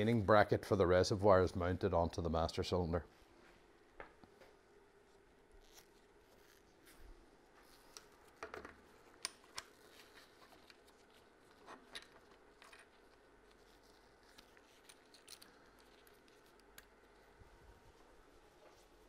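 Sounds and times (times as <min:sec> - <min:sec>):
small parts clicking and tapping: 0:11.7 - 0:17.0.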